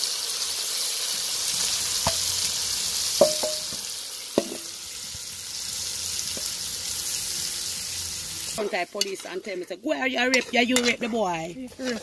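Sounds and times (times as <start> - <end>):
shrimp sizzling in oil: 0.0 - 11.0
metal spoon clanking on pot: 3.2 - 3.8, 10.3 - 11.1.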